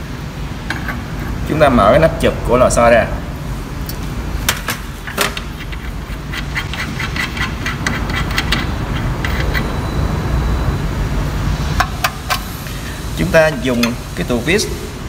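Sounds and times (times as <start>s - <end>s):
low machine rumble: 0.0s - 15.0s.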